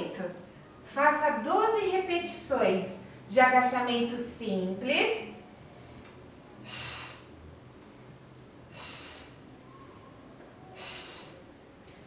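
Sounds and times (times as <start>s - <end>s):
woman's short hissing breaths: 6.6s - 7.3s, 8.7s - 9.4s, 10.7s - 11.5s.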